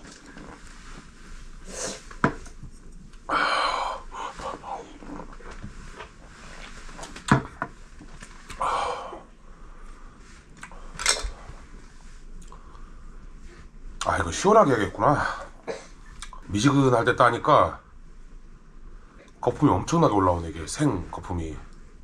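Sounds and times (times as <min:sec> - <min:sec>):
breathy exhales: 0:03.3 - 0:05.0, 0:08.6 - 0:11.0.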